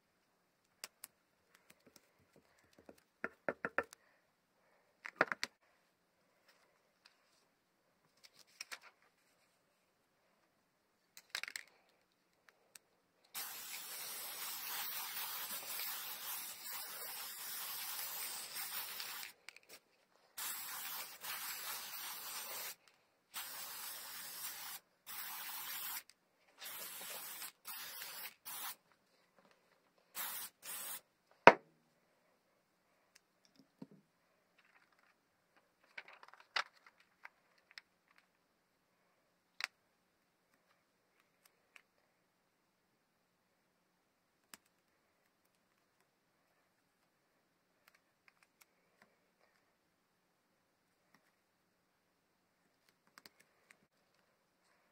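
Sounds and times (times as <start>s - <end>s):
aerosol spray hissing: 13.3s - 19.4s, 20.4s - 22.8s, 23.4s - 28.8s, 30.1s - 31.0s.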